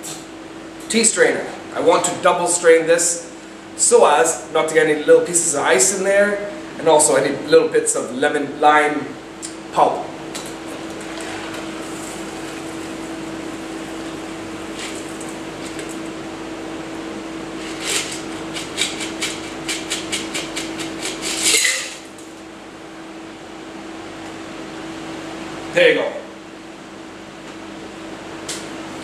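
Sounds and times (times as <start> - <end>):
steady hum: 0.0 - 29.0.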